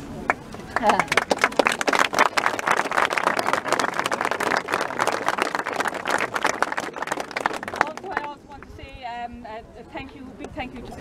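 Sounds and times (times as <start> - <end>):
crowd applauding: 0.3 - 8.7.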